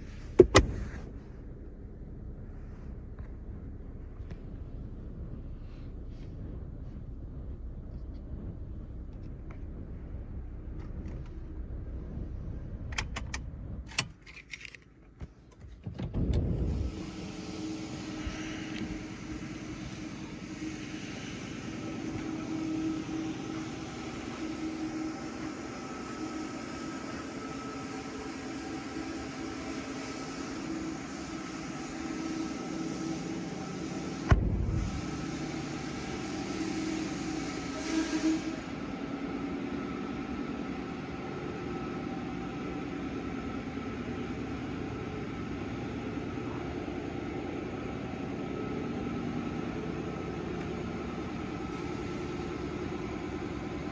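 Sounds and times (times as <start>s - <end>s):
car engine idling: 0.0s - 14.3s, 14.9s - 37.6s
car engine starting: 0.0s - 37.7s
background hum and hiss: 0.0s - 53.9s.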